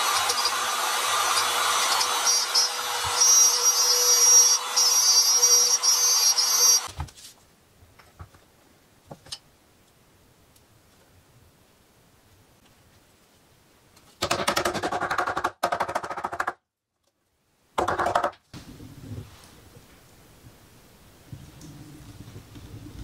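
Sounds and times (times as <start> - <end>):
router cutting wood: 0.0 - 6.9.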